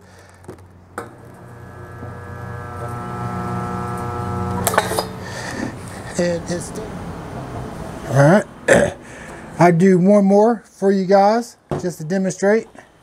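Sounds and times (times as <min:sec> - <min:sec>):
welder humming: 0:00.0 - 0:06.2.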